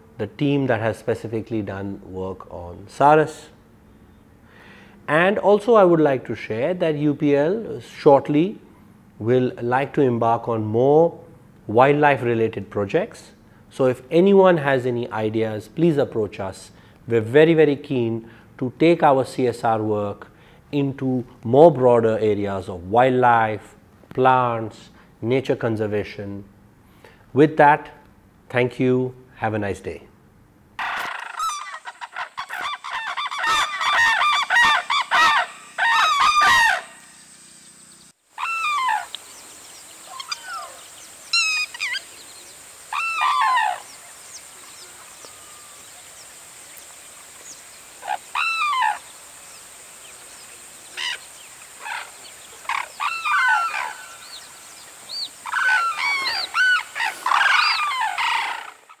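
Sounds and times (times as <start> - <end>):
cranes calling: 30.8 - 59.0
steady hiss: 31.5 - 59.0.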